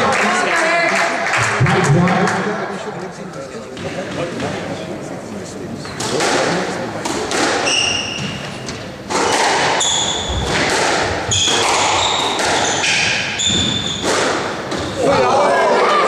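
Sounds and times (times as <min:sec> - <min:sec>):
squash ball striking rackets and walls: 0:06.0 - 0:15.2
shoes squeaking on wooden floor: 0:07.6 - 0:10.6, 0:11.2 - 0:15.0.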